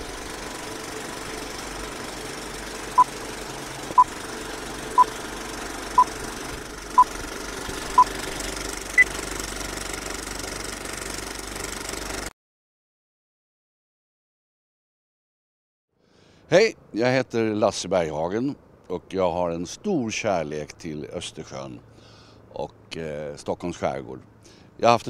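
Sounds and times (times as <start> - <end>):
film projector clatter: 0.0 - 12.3.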